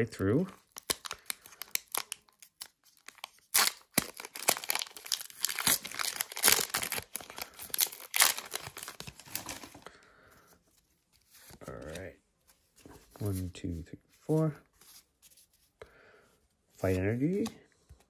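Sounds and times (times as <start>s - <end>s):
foil wrapper tearing and crackling: 0.7s - 9.8s.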